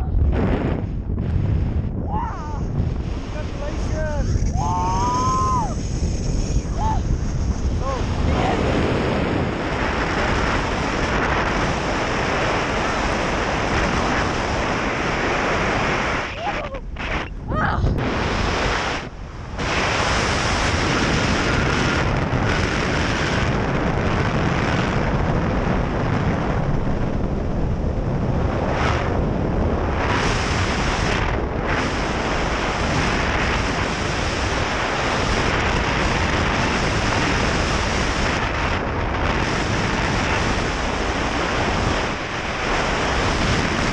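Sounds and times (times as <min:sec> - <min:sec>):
loud wind noise on microphone: 0:00.0 - 0:43.9.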